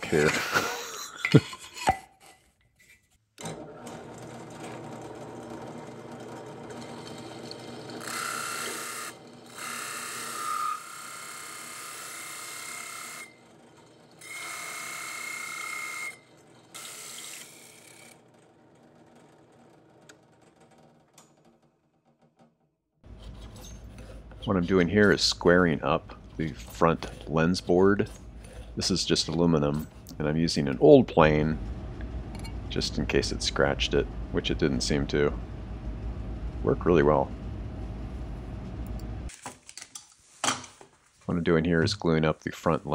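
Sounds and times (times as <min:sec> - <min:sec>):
drill press hole saw cutting wood: 0:03.4 - 0:19.8.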